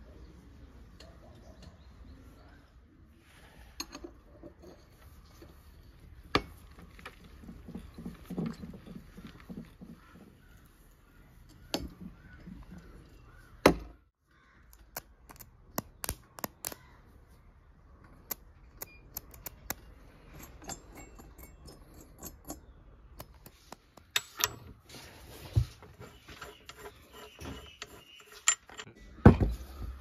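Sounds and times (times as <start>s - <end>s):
hand tools clinking on metal: 20.2s - 22.7s, 26.4s - 29.0s.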